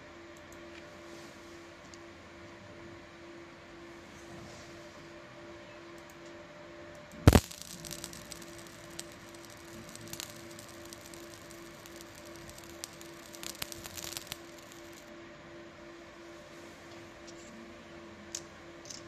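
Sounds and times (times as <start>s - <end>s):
steady hum: 0.0s - 19.0s
faint crackling ticks of laser: 6.0s - 15.1s
sharp double click: 7.3s - 15.0s.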